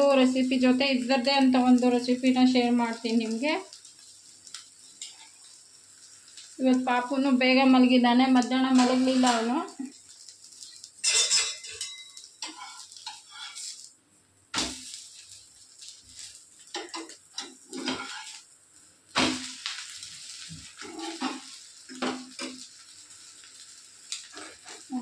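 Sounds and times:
food sizzling on hot pan: 0:00.0 - 0:25.0
metal spatula scraping pan: 0:08.7 - 0:09.5, 0:11.0 - 0:13.8, 0:16.7 - 0:18.4, 0:20.7 - 0:22.6.

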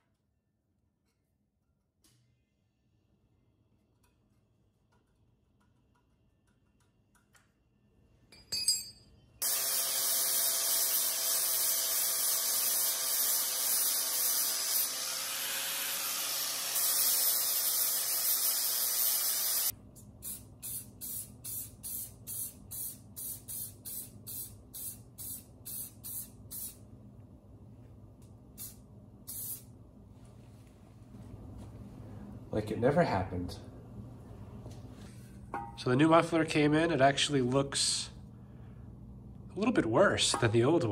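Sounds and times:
angle grinder grinding steel: 0:09.4 - 0:19.7
spray paint can hissing: 0:16.8 - 0:26.8, 0:28.6 - 0:29.7.

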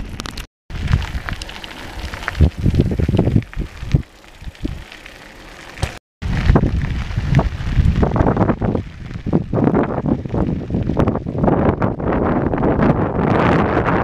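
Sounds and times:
wind buffeting microphone: 0:00.0 - 0:04.9, 0:06.2 - 0:14.0
bicycle knocks and rattles: 0:05.6 - 0:06.0.

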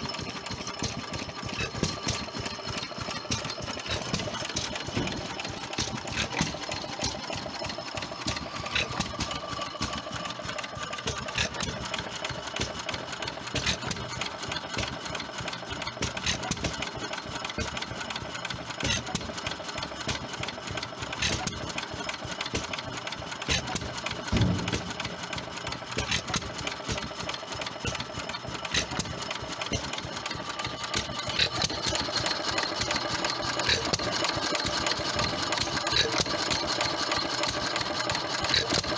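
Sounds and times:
mechanical clatter and ticking: 0:00.0 - 0:38.9
stationary engine firing knock: 0:24.3 - 0:26.4.

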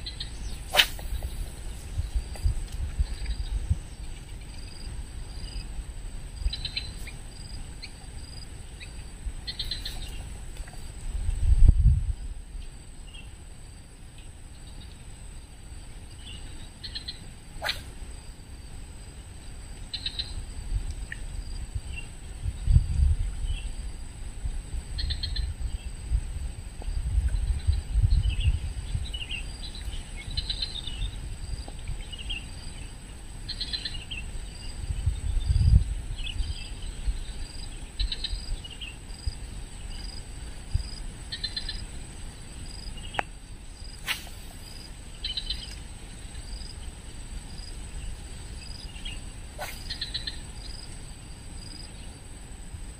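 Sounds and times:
low rumbles on microphone: 0:00.0 - 0:05.0, 0:09.2 - 0:12.5, 0:21.7 - 0:31.7
short chirping calls: 0:06.4 - 0:07.2, 0:08.8 - 0:10.3, 0:16.2 - 0:18.0, 0:48.6 - 0:50.8.

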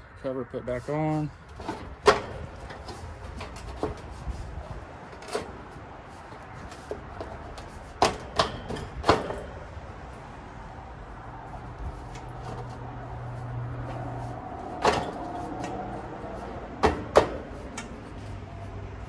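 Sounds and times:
metal cover knocks and clunks: 0:01.6 - 0:04.2, 0:06.9 - 0:09.7, 0:14.7 - 0:15.8, 0:16.8 - 0:17.9.

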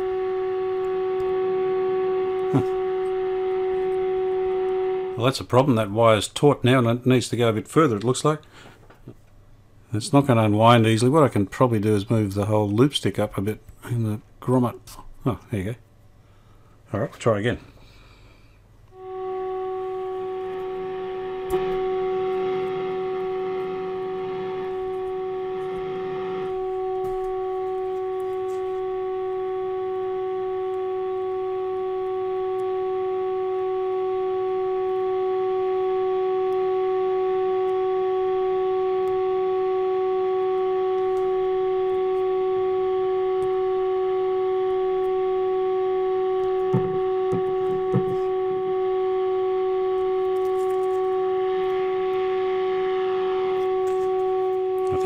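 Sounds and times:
radio test tone: 0:00.0 - 0:07.9, 0:19.0 - 0:55.0.

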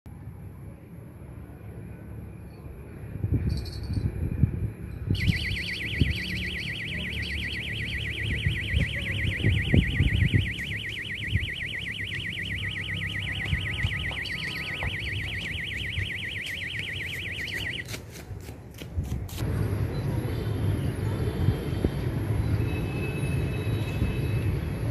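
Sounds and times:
electronic alarm tone warbling: 0:05.2 - 0:17.9.

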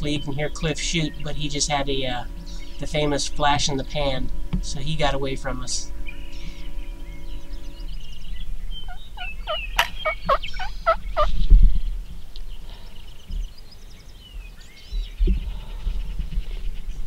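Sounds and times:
wild turkey calling: 0:00.0 - 0:11.5
small birds chirping: 0:00.0 - 0:17.0.

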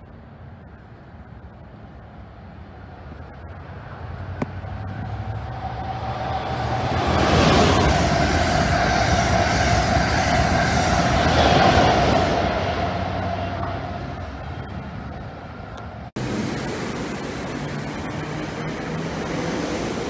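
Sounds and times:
high-speed train passing: 0:00.0 - 0:20.0.

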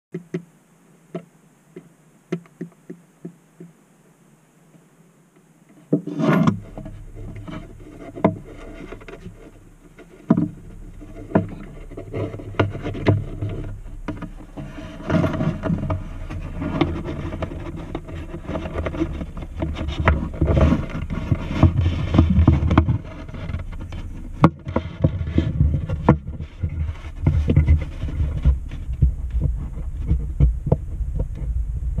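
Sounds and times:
low rumble: 0:06.5 - 0:32.0.

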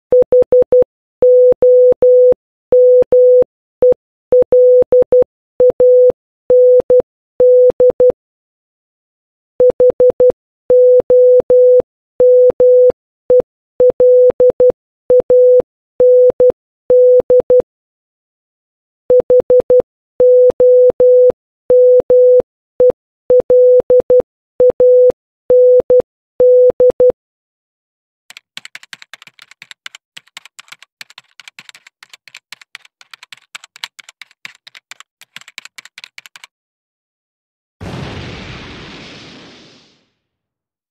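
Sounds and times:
rapid quiet clicking: 0:28.3 - 0:36.5
sudden burst: 0:37.8 - 0:40.1.

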